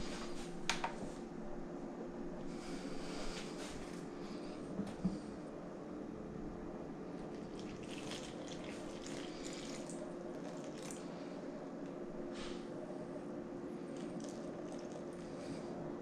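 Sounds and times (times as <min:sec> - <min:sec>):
low hum: 0:00.0 - 0:16.0
water splashing into bowl: 0:07.5 - 0:11.0, 0:14.0 - 0:15.0.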